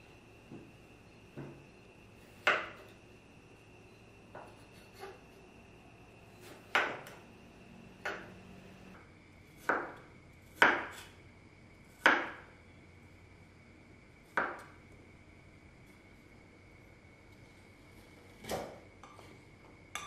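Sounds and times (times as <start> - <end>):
knife chopping on wooden board: 9.6 - 10.0, 10.6 - 11.1.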